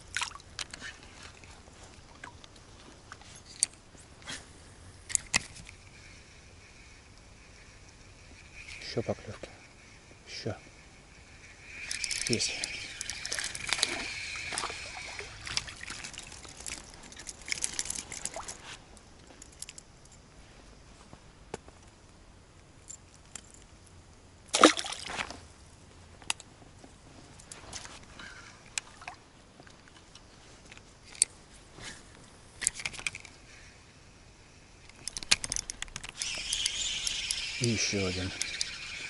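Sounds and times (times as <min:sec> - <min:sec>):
fishing reel clicks: 0:09.9 - 0:18.5, 0:34.8 - 0:39.0
water splashing: 0:11.8 - 0:16.7, 0:24.5 - 0:25.1.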